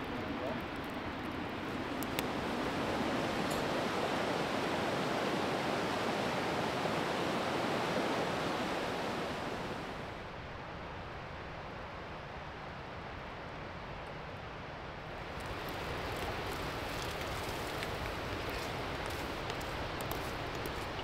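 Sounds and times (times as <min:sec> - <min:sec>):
mountain stream rushing: 0:00.0 - 0:10.3, 0:15.0 - 0:21.0.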